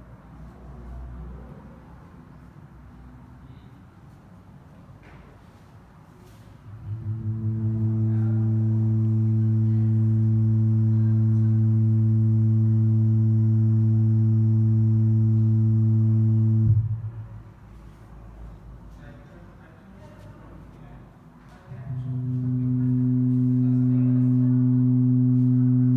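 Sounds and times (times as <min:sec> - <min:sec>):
low vibration driver hum: 0:06.7 - 0:17.5, 0:21.8 - 0:25.9.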